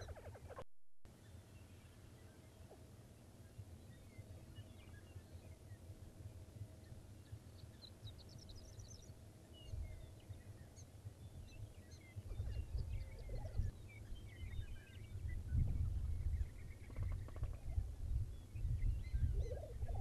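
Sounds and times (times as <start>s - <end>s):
prairie chickens gobbling calls: 0.0s - 0.6s
small birds chirping: 0.0s - 20.0s.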